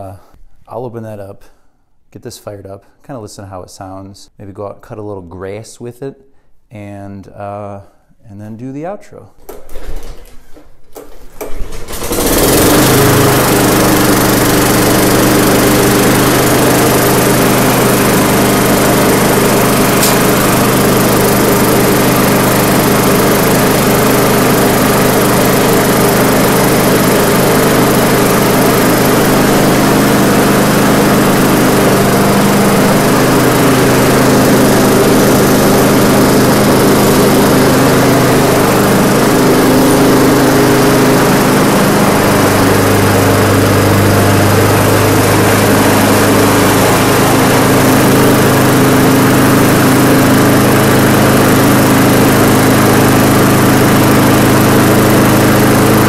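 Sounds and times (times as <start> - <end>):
mower engine running: 11.9 - 56.0.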